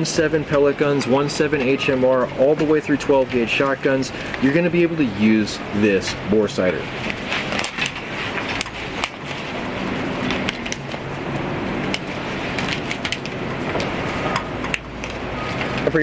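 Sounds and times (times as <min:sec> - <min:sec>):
steady background rumble: 0:00.0 - 0:16.0.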